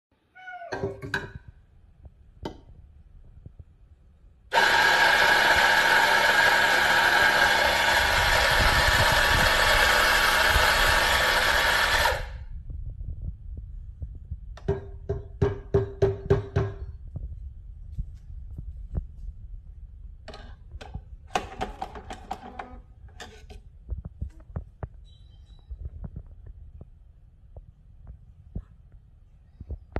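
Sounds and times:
espresso grinder grinding coffee: 4.5s - 12.4s
knocking portafilter: 20.3s - 23.5s.

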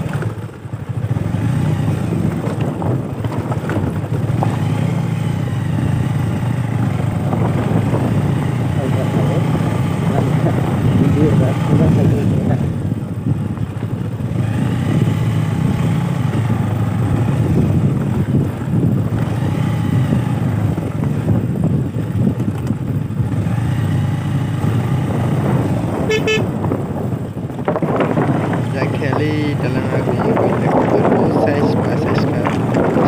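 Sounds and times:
motorcycle engine revving: 0.0s - 33.0s
wind rumbling on microphone: 0.0s - 33.0s
horn toot: 26.0s - 26.6s.

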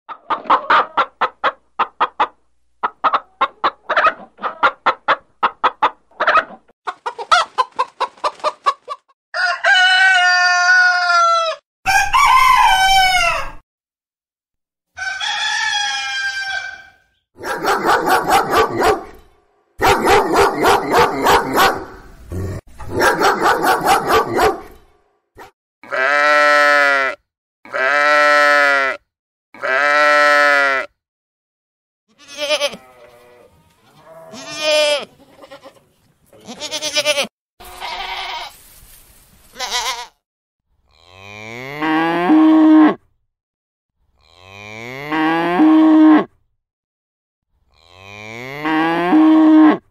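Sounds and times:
rooster crowing: 9.3s - 13.6s, 15.0s - 17.0s
sheep and goat bleating: 25.8s - 29.0s, 29.6s - 30.9s, 32.1s - 35.8s, 36.4s - 38.6s, 39.5s - 40.2s
cow mooing: 32.2s - 34.8s, 40.9s - 43.0s, 44.2s - 46.3s, 47.7s - 49.9s.

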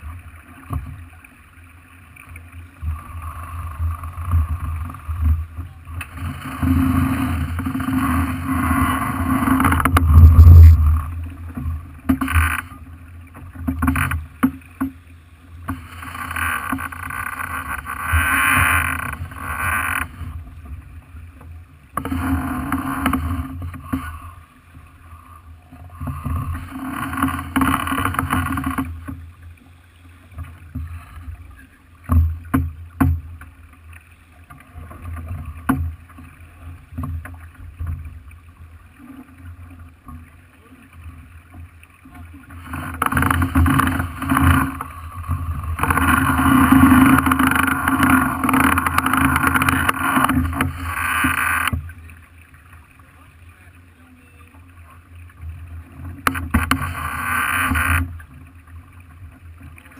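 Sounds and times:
water rushing along boat hull: 0.0s - 59.9s
low rumble: 2.9s - 12.1s.

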